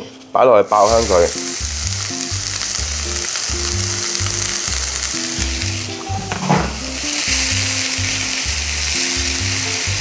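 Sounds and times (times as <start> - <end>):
onion sizzling in oil: 0.6 - 10.0
knock: 6.3 - 6.8.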